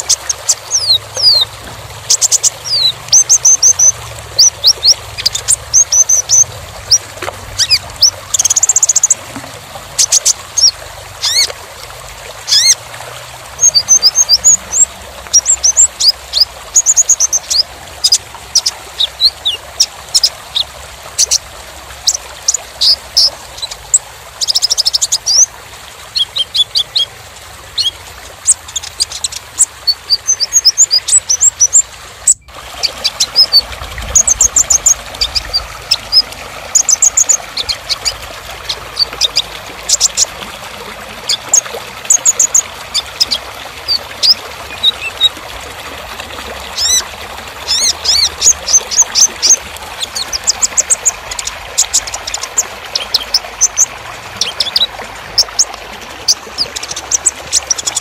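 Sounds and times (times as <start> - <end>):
bird singing high chirps: 0.0 - 1.5, 2.1 - 7.0.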